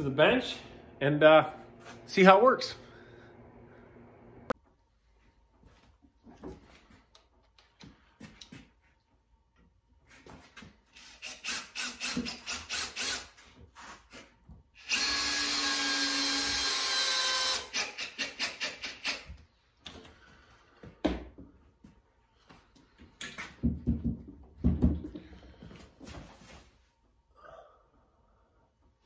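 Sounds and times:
cordless drill driving screws: 11.0s - 13.4s, 14.8s - 19.3s.

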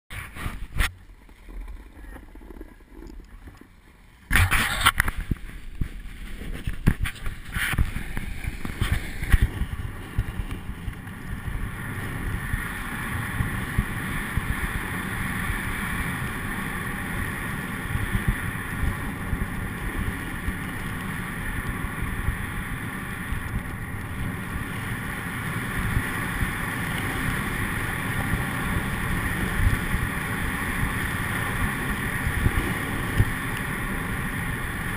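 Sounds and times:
snowboard knocks and bumps: 0.1s - 12.6s
wind and snow rushing: 0.1s - 34.9s.

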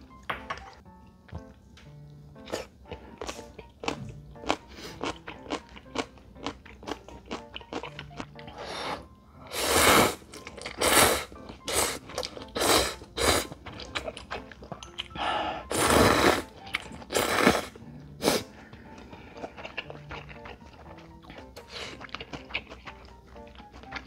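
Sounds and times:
quiet chewing: 1.3s - 9.1s, 10.2s - 15.7s, 16.4s - 24.0s
person slurping noodles: 8.5s - 12.0s, 12.6s - 13.6s, 15.2s - 16.5s, 17.1s - 18.6s.

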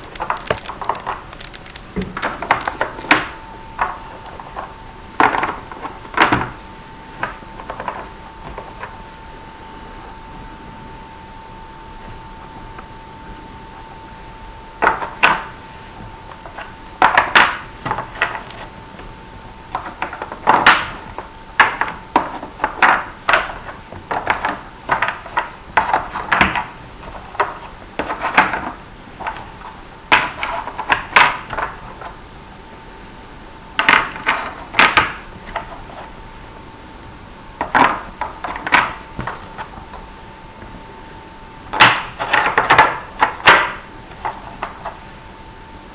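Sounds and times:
faint hum: 0.0s - 45.9s
blocks clicking into board slots: 33.8s - 35.7s, 41.8s - 45.0s.

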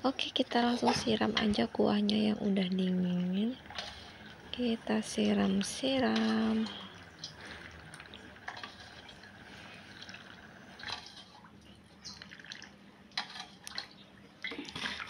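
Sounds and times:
liquid dripping and trickling: 5.5s - 15.0s.

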